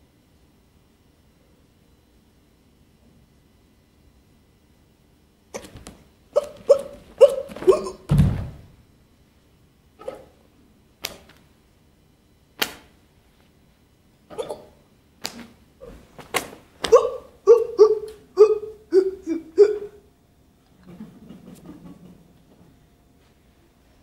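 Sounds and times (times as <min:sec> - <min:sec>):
woman yelping and gasping: 0:16.9 - 0:20.0.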